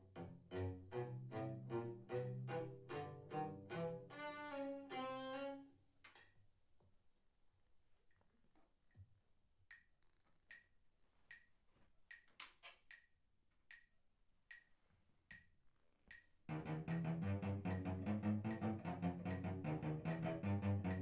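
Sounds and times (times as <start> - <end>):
bowed cello playing: 0.0 - 5.7, 16.5 - 21.0
metronome ticking: 16.1 - 21.0.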